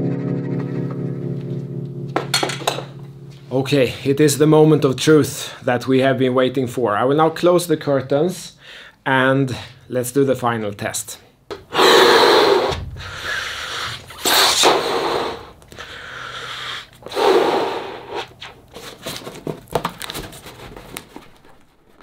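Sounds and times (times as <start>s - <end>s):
person breathing in: 8.6s - 9.0s, 11.7s - 18.1s
person blowing into balloon: 11.7s - 18.6s
balloon rubber squeaks and snaps: 14.2s - 15.8s.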